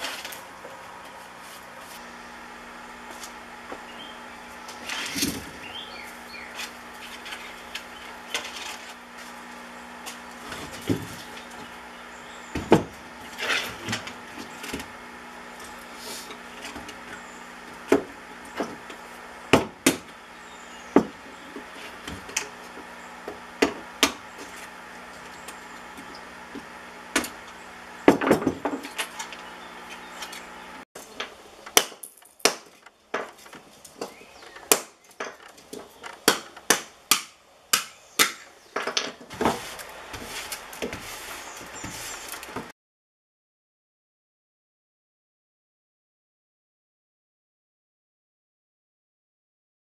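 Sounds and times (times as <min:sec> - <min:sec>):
steady low hum: 0:00.0 - 0:31.7.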